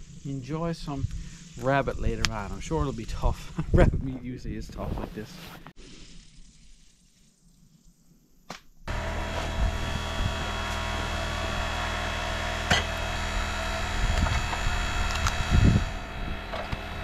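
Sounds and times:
electric motor humming: 8.9 - 17.0.

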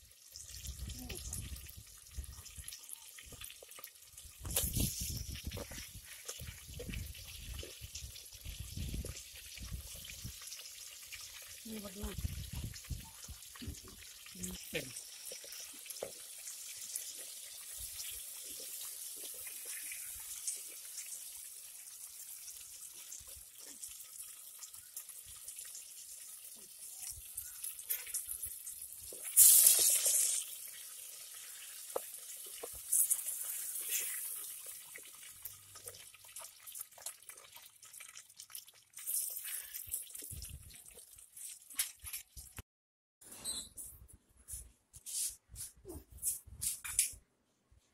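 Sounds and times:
fish sizzling in hot oil: 0.0 - 42.6.

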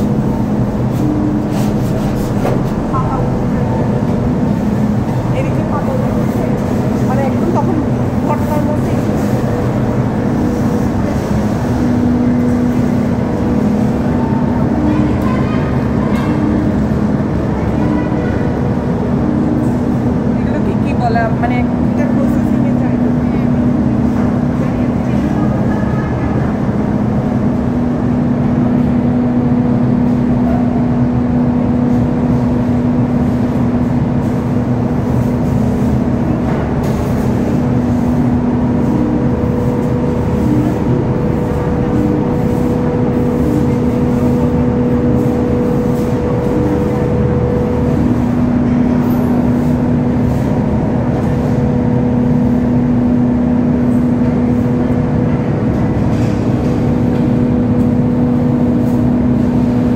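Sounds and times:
factory machinery humming: 0.0 - 59.9.

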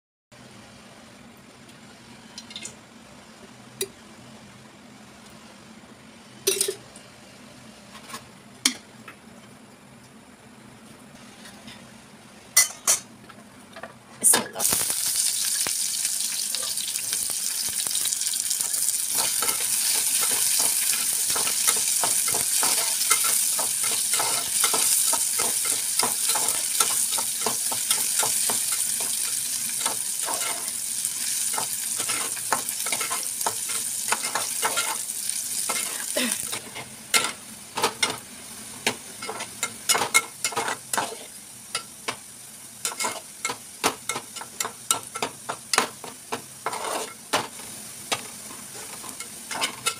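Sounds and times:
onions sizzling in oil: 14.6 - 49.9.

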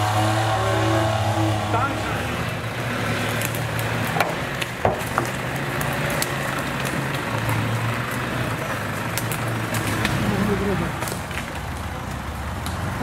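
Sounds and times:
vehicle engine running: 0.0 - 13.0
sharp clicks and cracks: 3.2 - 12.9.

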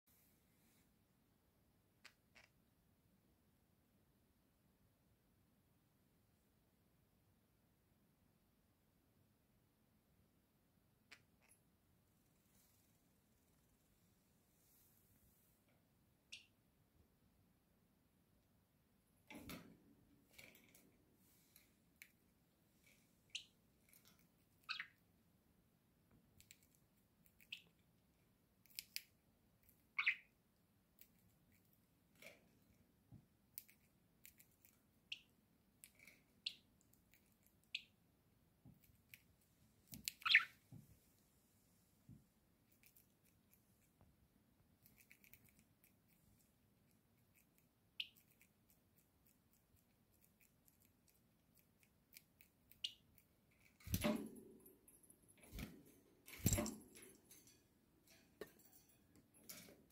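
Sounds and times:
budgerigars chirping and squeaking: 24.6 - 25.0, 29.9 - 30.3, 40.1 - 40.6
beaks nibbling clicks: 28.6 - 29.1, 44.8 - 46.5, 47.2 - 53.8.

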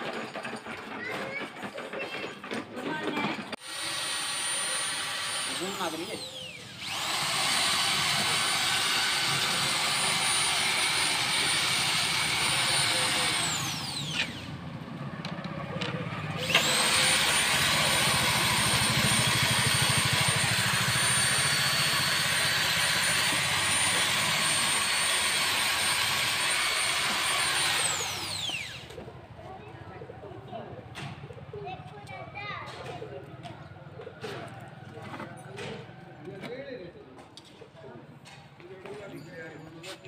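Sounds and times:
power tool whining on wood: 1.6 - 29.1.

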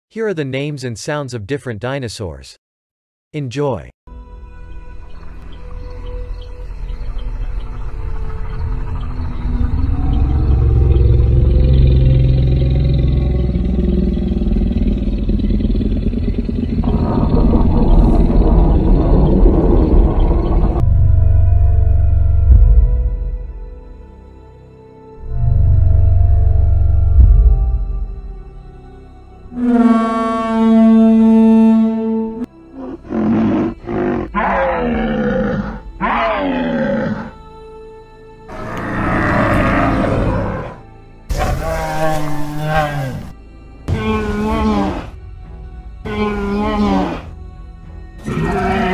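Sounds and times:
deep low growl: 8.1 - 23.5, 25.2 - 28.3, 38.5 - 45.2, 46.0 - 47.4
horn-like honk call: 29.5 - 33.7.

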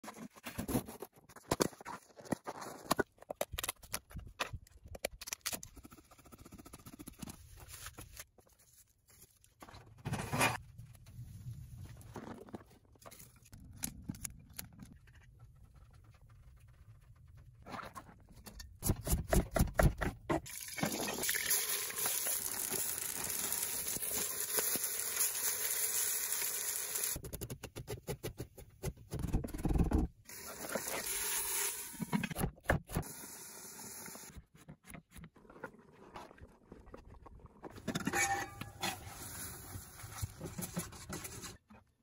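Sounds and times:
meat and onions sizzling: 21.4 - 27.2.

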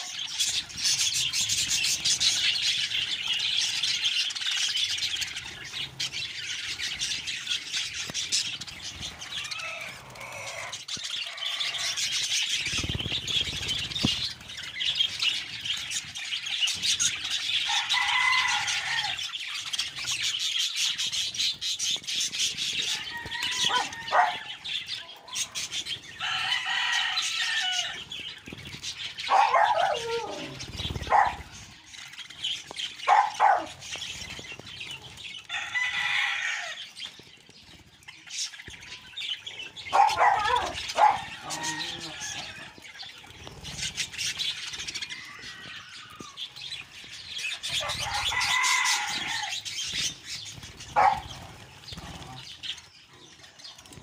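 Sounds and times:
wings flapping and water splashing: 0.0 - 24.5, 40.6 - 52.9
budgerigars chattering and chirping: 0.0 - 54.0.

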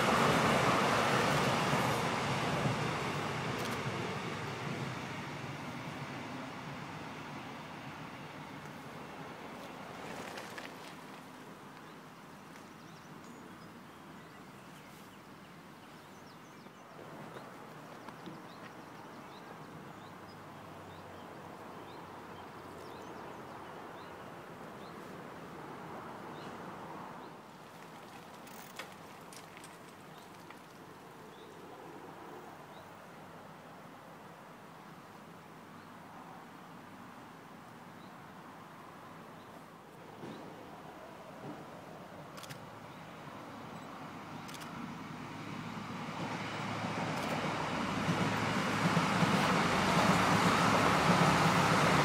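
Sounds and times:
outdoor background noise: 0.0 - 52.0
steady background hiss: 0.0 - 52.0
bicycle clicks and ticks: 27.9 - 29.8.

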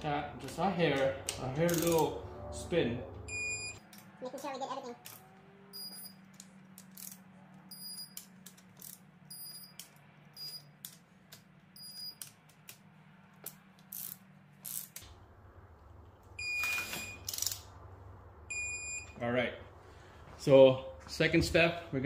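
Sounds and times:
ratchet clicks: 1.7 - 2.0, 6.4 - 7.2, 7.8 - 12.8, 13.4 - 15.0, 17.3 - 17.6
lower beep: 3.2 - 3.8, 5.7 - 6.2, 7.7 - 8.2, 9.3 - 9.8, 10.4 - 10.7, 11.8 - 12.2, 16.4 - 17.3, 18.5 - 19.2
torque wrench high beeps: 3.3 - 3.8, 5.7 - 6.2, 7.7 - 8.3, 9.3 - 9.8, 10.4 - 10.7, 11.8 - 12.2.

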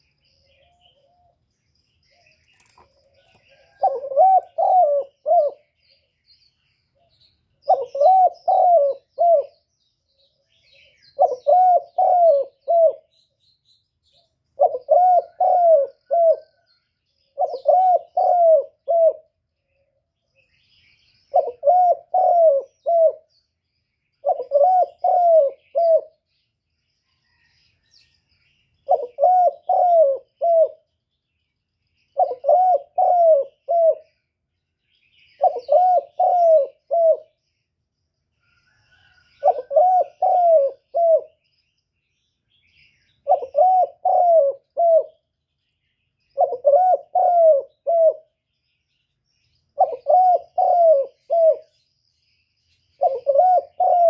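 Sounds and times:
small birds chirping: 0.0 - 54.0
dove cooing: 2.2 - 5.9, 7.0 - 9.6, 10.5 - 13.2, 14.6 - 19.4, 21.3 - 23.3, 24.2 - 26.2, 28.8 - 30.9, 32.2 - 34.2, 35.3 - 37.4, 38.6 - 41.4, 43.2 - 45.2, 46.3 - 48.4, 49.8 - 51.8, 53.0 - 54.0.

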